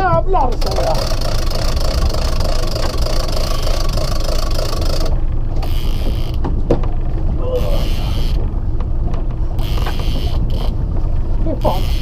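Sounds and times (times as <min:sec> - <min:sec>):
boat engine running: 0:00.0 - 0:12.0
wind on microphone: 0:00.0 - 0:12.0.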